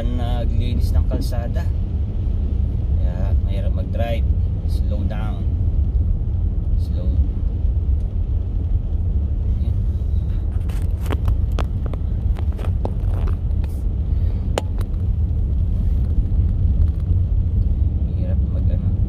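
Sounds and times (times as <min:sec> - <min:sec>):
car driving on snowy road: 0:00.0 - 0:19.0
light clicks and taps: 0:10.3 - 0:13.8.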